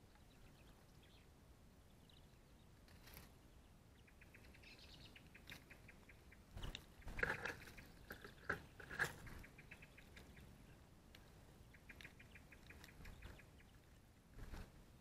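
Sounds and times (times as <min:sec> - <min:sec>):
quick ticking bird calls: 0:04.0 - 0:10.8, 0:11.6 - 0:13.9
wing flutters: 0:06.5 - 0:10.4, 0:12.0 - 0:14.8.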